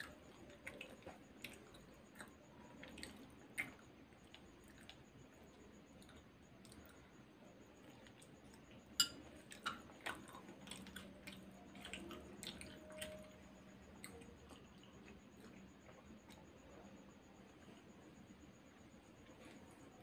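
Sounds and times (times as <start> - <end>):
faint chewing: 0.0 - 20.0.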